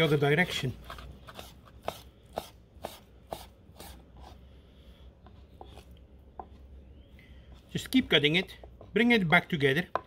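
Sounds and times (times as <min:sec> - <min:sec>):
knife chopping on wooden board: 0:00.9 - 0:04.3.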